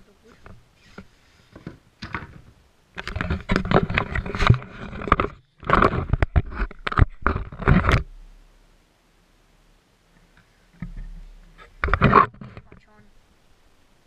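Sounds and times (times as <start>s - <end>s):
camera handling rustling and scraping: 0.3s - 8.1s, 10.8s - 12.7s.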